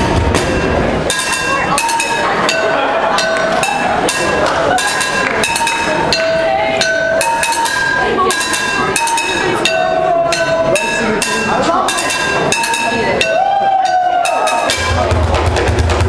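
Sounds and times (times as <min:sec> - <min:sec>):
drumsticks on ringing metal pots: 0:00.4 - 0:15.1
drumsticks on plastic buckets: 0:03.2 - 0:13.4.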